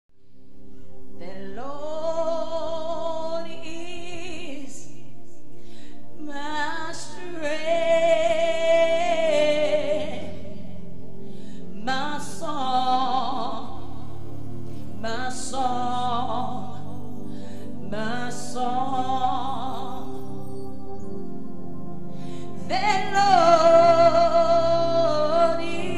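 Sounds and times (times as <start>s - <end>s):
woman singing gospel song: 1.2s - 5.2s, 6.2s - 10.7s, 11.8s - 14.1s, 15.0s - 16.9s, 17.8s - 20.2s, 22.4s - 25.9s.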